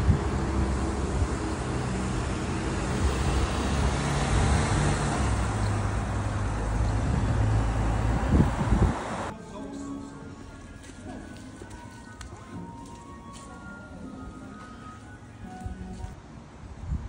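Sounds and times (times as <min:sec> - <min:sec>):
tyres rushing on road: 0:00.0 - 0:09.3
vehicle engine humming: 0:00.0 - 0:09.4.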